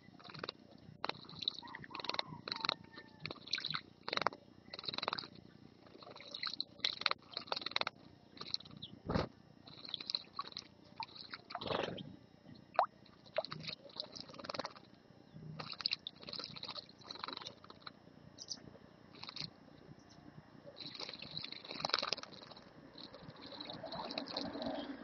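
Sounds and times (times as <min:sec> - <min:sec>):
birds splashing water: 0:00.2 - 0:08.7, 0:09.7 - 0:11.9, 0:12.8 - 0:14.9, 0:15.6 - 0:17.9, 0:19.1 - 0:19.5, 0:20.8 - 0:25.0.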